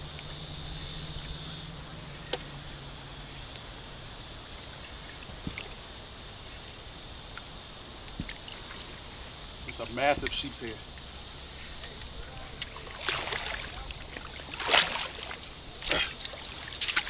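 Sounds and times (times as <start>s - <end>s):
distant motorboat hum: 0.0s - 17.0s
steady hiss: 0.0s - 17.0s.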